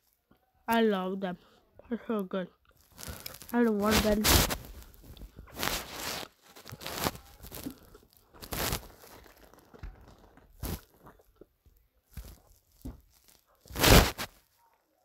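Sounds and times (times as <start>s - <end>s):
plastic bag crinkling: 2.7s - 11.4s, 12.0s - 14.5s.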